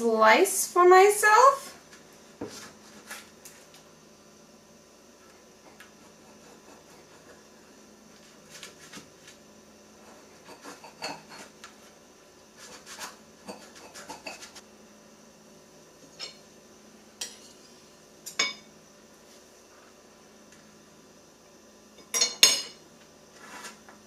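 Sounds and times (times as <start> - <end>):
knife scraping pie tin: 12.6 - 14.6, 23.4 - 23.8
metal clinking on glass plate: 22.0 - 22.8.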